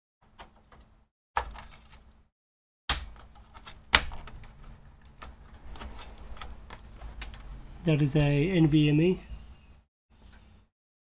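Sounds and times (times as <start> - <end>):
clicks and knocks handling cable: 3.1 - 7.5.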